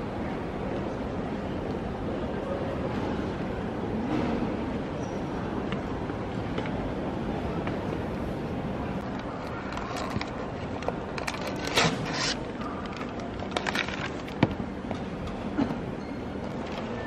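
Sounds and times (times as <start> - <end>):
airport terminal hum: 0.0 - 17.0
clicks and clatters: 9.0 - 14.6.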